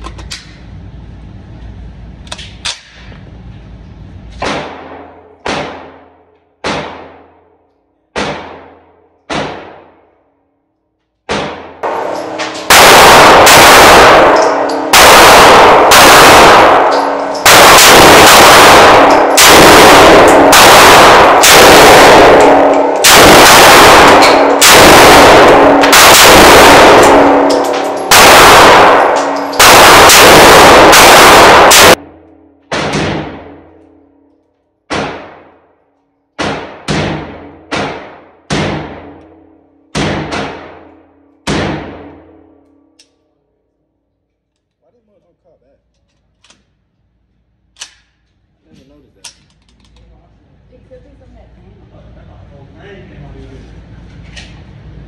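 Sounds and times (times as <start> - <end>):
rapid gunfire indoors: 4.4 - 44.1.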